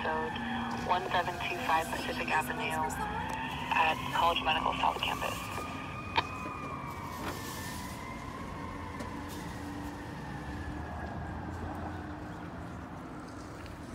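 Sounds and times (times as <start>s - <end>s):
fire engine siren: 0.0s - 13.9s
street traffic rumble: 0.0s - 13.9s.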